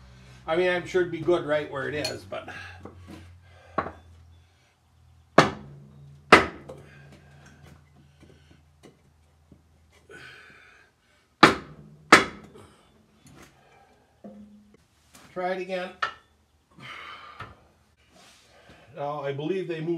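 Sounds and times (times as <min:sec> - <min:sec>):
hammer knocking on metal: 0:05.4 - 0:06.8.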